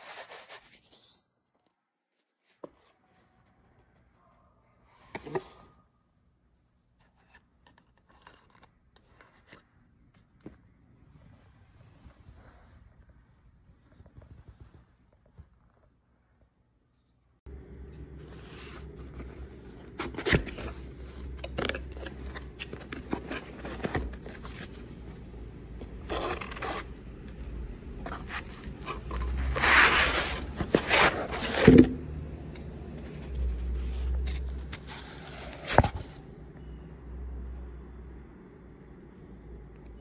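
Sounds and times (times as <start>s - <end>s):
low steady hum: 15.7s - 40.0s
cardboard box scraping and rustling: 18.2s - 25.2s, 25.9s - 27.0s, 28.0s - 32.0s, 33.0s - 36.3s.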